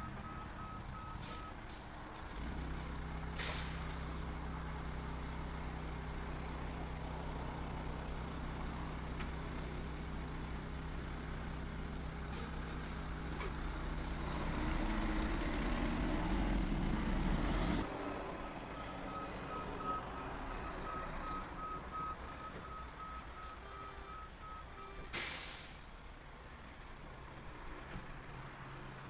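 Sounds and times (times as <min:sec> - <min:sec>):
diesel truck engine revving: 0:12.2 - 0:23.1.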